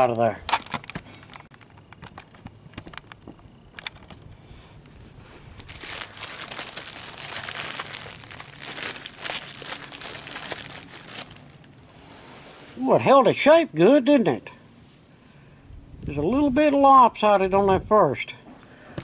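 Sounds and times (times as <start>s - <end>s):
plastic wrapping crinkling: 5.5s - 11.8s.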